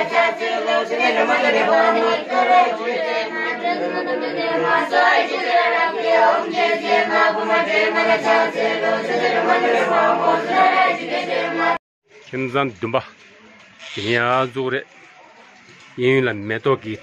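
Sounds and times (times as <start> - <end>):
children singing together: 0.0 - 11.8.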